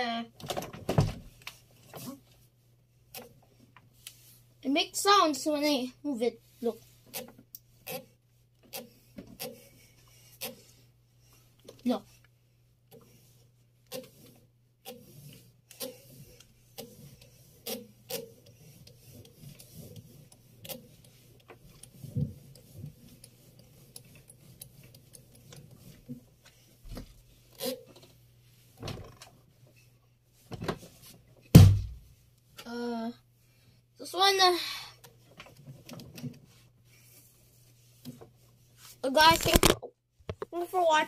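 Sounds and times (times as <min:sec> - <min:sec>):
washing machine drum clicks and scrapes: 0:13.8 - 0:28.2
loud thump: 0:31.5 - 0:32.0.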